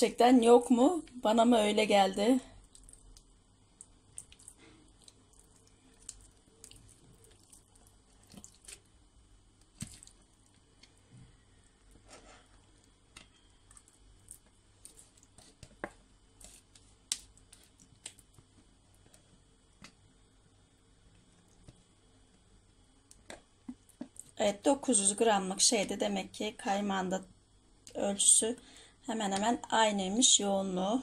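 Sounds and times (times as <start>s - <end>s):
wet scraping of cream: 4.1s - 8.9s, 9.7s - 10.3s.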